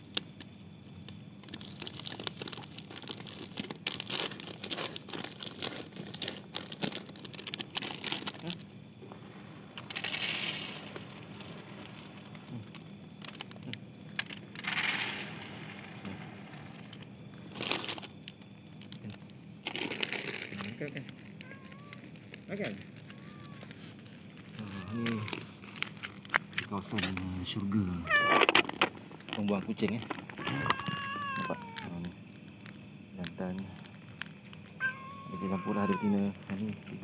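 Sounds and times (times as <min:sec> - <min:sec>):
plastic packaging crinkling: 0:01.4 - 0:08.6, 0:15.9 - 0:37.0.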